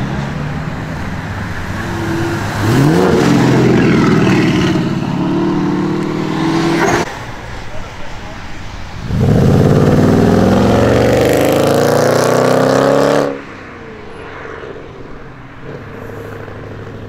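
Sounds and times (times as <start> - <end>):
car engine accelerating hard: 0.0 - 7.1, 9.0 - 13.4.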